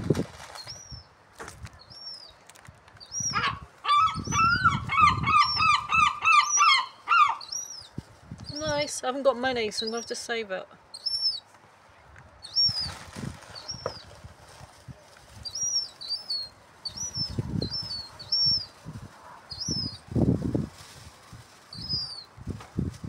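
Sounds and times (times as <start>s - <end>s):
low rustling bursts: 0.0s - 1.9s, 7.7s - 9.9s, 11.5s - 23.0s
gulls begging whistles: 3.1s - 7.9s, 19.5s - 20.0s.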